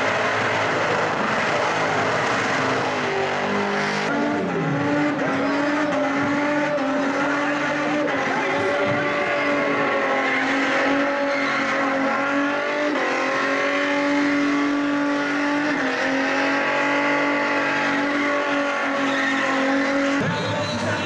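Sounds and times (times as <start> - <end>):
car engine at high revs: 0.0 - 20.9
tyres squealing: 17.5 - 21.0.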